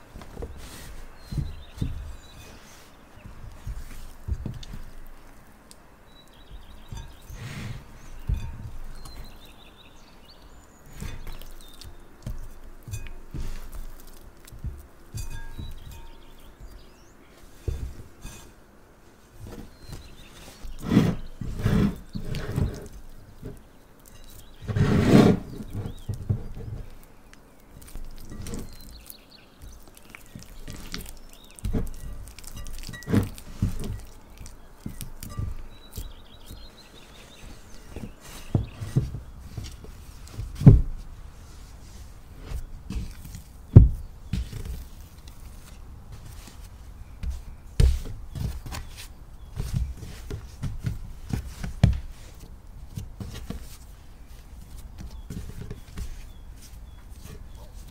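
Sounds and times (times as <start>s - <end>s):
dough stretched and folded: 0.0s - 57.9s
dough thudding on wooden board: 42.9s - 44.9s.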